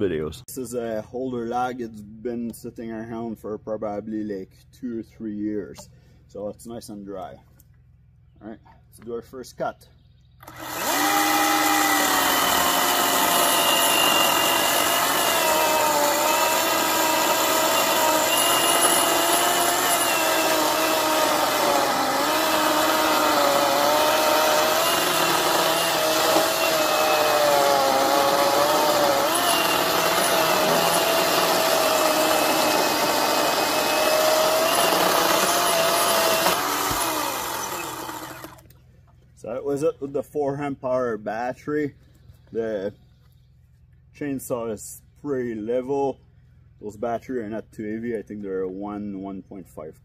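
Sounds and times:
cordless chainsaw cutting log: 10.4s - 38.7s.

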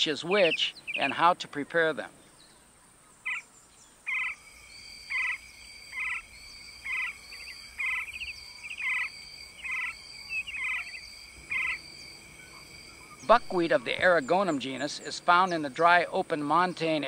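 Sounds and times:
longer high-pitched calls: 4.1s - 14.0s.

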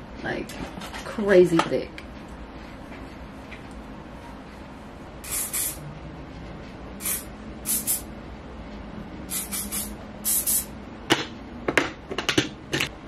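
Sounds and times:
aerosol spray hissing: 5.2s - 5.8s, 7.0s - 8.1s, 9.3s - 10.7s.

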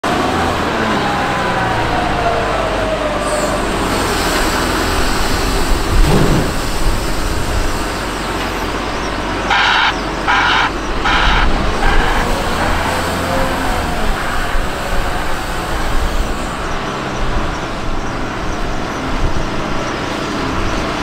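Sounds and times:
diesel engine running: 0.0s - 21.0s
heavy thump: 5.9s - 7.0s
reversing alarm pulses: 9.4s - 14.2s.

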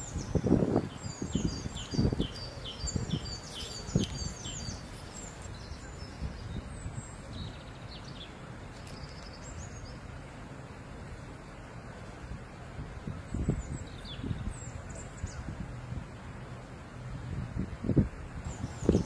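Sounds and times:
small birds chirping: 0.0s - 10.1s, 13.2s - 15.6s, 18.4s - 19.0s.

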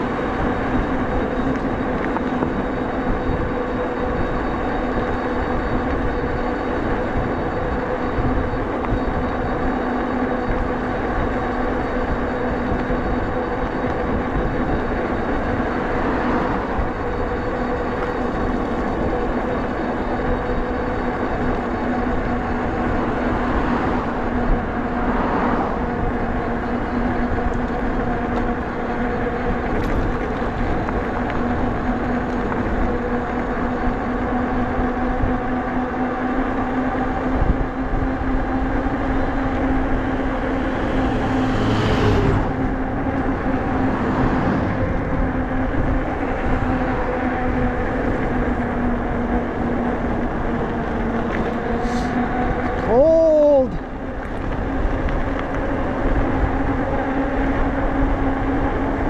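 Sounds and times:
electric bike motor hum: 0.0s - 59.0s.

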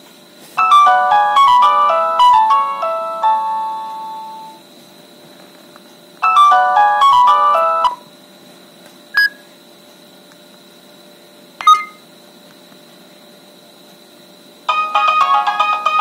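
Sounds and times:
phone ringtone bright notes: 0.6s - 4.6s, 11.6s - 12.0s.

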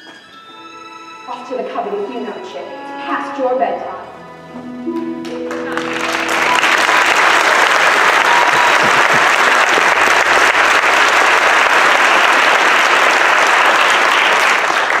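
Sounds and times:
audience applauding: 5.2s - 15.0s.

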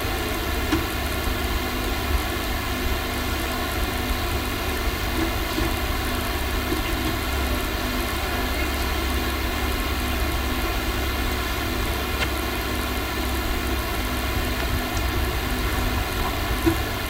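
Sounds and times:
low hum: 0.0s - 17.0s
steady hiss: 0.0s - 17.0s.

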